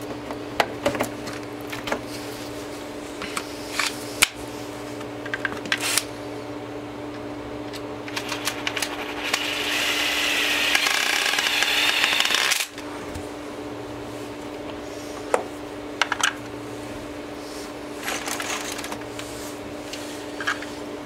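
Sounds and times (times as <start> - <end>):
cordless driver driving a screw: 8.4 - 12.7.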